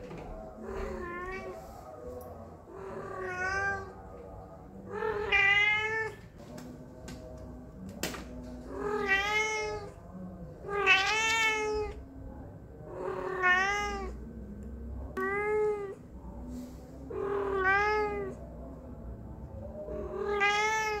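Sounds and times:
cat meowing: 0.8 - 1.6, 3.0 - 4.0, 4.9 - 6.2, 8.7 - 10.0, 10.6 - 12.0, 13.1 - 14.2, 15.2 - 16.0, 17.2 - 18.4, 20.1 - 21.0.

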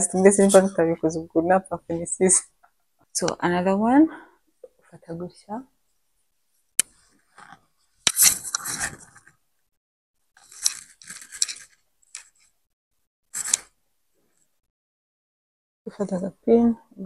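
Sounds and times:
fabric rustling against microphone: 6.4 - 9.4, 10.4 - 12.5.

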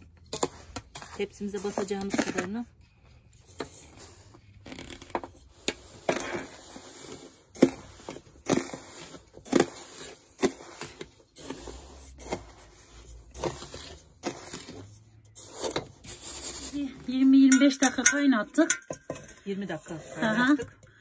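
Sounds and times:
spoon scooping flour from metal tray: 5.5 - 18.1.

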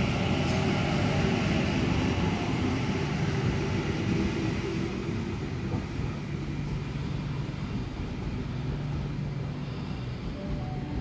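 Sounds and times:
electric train rumbling: 0.0 - 11.0.

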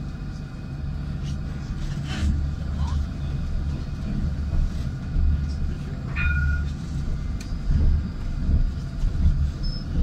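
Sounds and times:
tram low rumble: 0.0 - 10.0.

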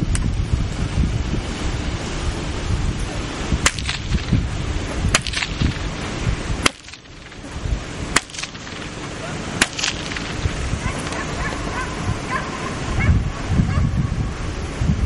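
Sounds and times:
wind rumbling on microphone: 0.0 - 15.0
whip cracks: 3.6 - 4.4, 5.1 - 5.9, 6.6 - 7.4, 8.1 - 9.0, 9.6 - 11.3.

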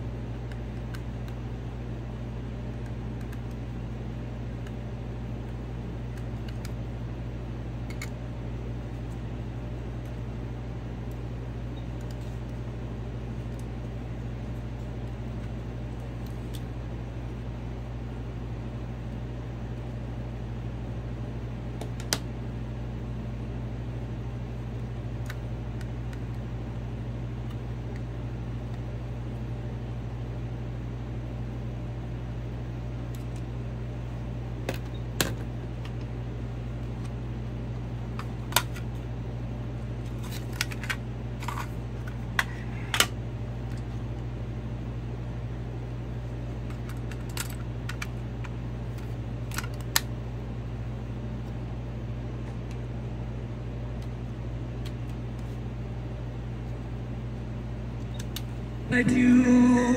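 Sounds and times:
low background hum: 0.0 - 59.9
plastic cassette clicks: 38.2 - 38.8, 49.0 - 50.1.

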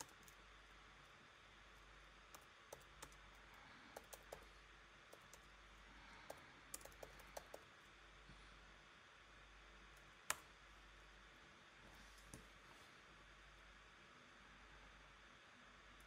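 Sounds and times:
low steady hum and hiss: 0.0 - 16.0
keyboard keystrokes: 6.3 - 7.6.

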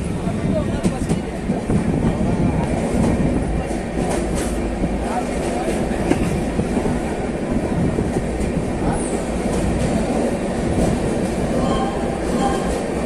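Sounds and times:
train wheels rumbling on rails: 0.0 - 13.0.

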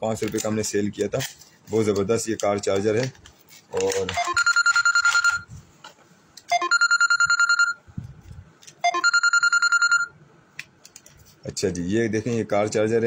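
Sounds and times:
telephone ringing: 4.2 - 5.5, 6.5 - 7.8, 8.8 - 10.2.

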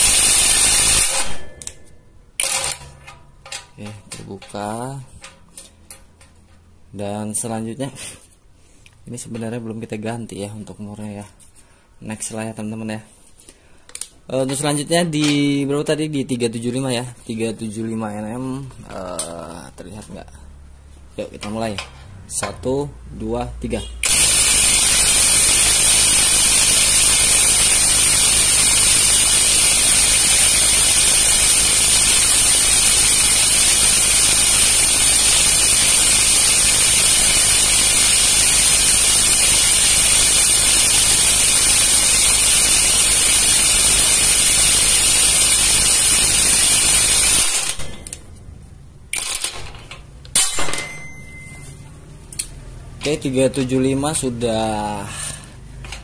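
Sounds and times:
impact wrench hammering: 0.0 - 1.8, 24.0 - 48.0.

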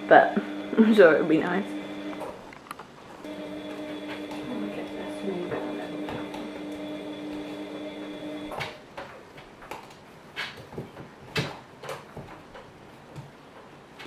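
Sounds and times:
steady hum: 0.0 - 9.1.

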